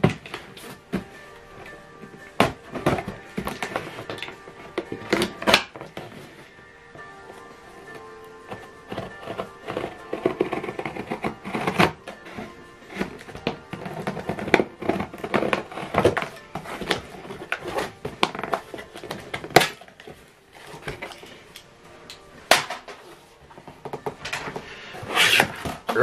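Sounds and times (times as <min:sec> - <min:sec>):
background music: 0:00.0 - 0:26.0
cardboard flaps scraping: 0:07.8 - 0:21.3, 0:22.9 - 0:26.0
scissors snipping packing tape: 0:08.6 - 0:12.2.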